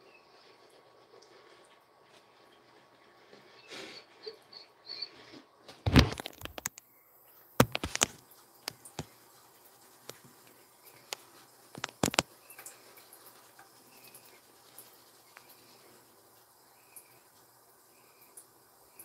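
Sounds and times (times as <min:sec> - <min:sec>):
phone knocking on counter: 0:07.6 - 0:08.1
tap water running into sink: 0:07.6 - 0:19.0.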